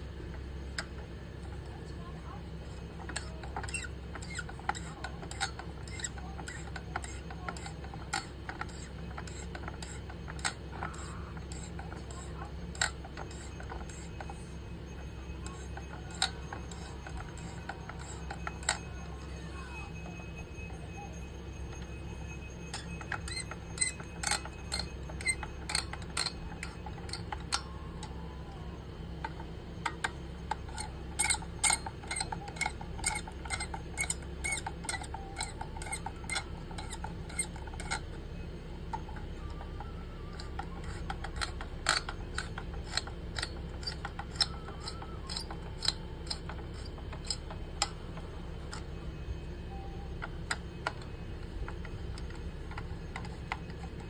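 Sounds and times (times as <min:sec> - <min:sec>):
low steady hum: 0:00.0 - 0:54.0.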